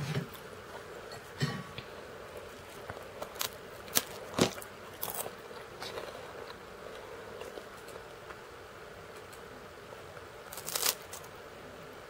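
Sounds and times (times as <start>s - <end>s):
faint steady hum: 0.0s - 12.0s
crackers crunching: 2.2s - 11.4s.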